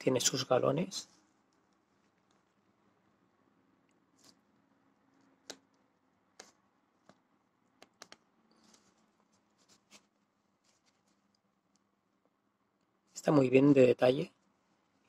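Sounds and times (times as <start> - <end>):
cloth rustling: 8.5 - 11.4.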